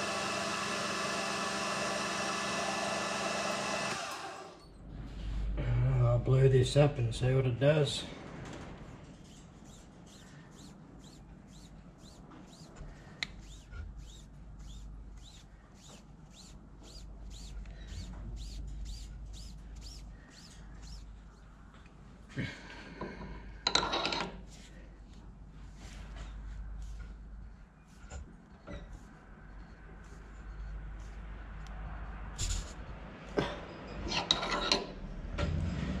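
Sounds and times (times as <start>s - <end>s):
metal sleeve scraping: 8.9s - 21.6s
rag rubbing on steel with squeaks: 9.0s - 21.6s.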